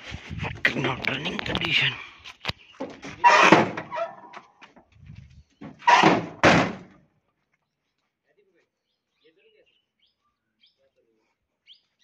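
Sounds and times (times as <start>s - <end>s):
steel truck door slamming: 3.2s - 4.1s, 5.7s - 6.9s.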